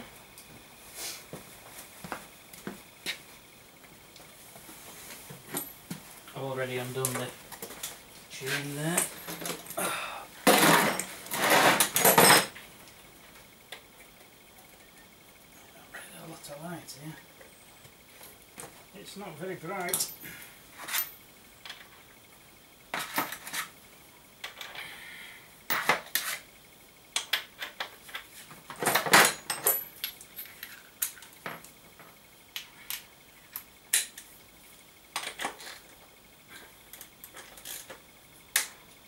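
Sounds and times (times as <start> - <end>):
metal tools clinking: 19.8 - 20.2.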